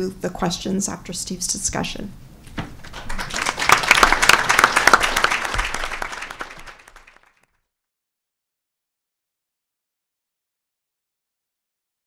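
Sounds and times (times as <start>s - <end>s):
audience applauding: 2.7s - 7.5s.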